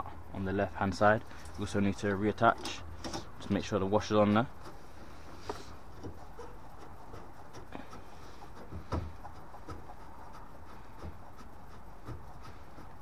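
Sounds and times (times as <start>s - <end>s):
steady low hiss: 0.0s - 13.0s
light clicks and knocks on fittings: 2.4s - 6.2s.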